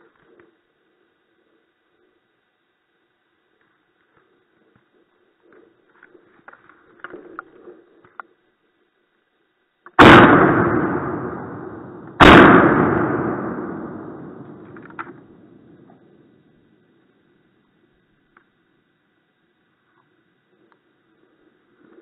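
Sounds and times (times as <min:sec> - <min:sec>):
shotgun shots with echo: 0:10.0 - 0:15.6.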